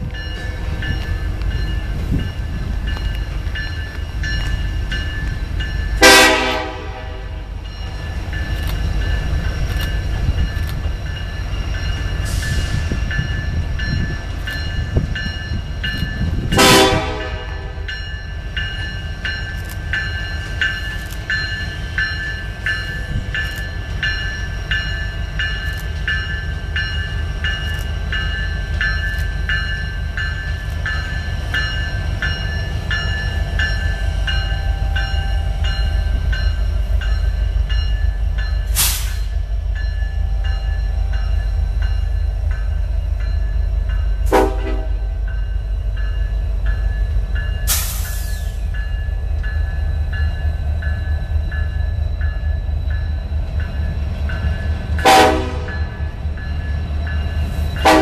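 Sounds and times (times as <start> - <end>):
diesel locomotive rumble: 0.0 - 58.0
train horn blasts: 6.0 - 7.6, 16.4 - 17.9, 44.2 - 45.2, 55.0 - 56.0, 57.8 - 58.0.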